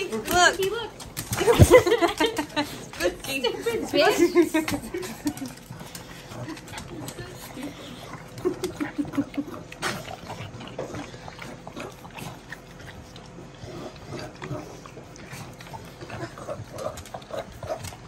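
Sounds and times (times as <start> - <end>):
dog licking and slurping: 0.0 - 18.0.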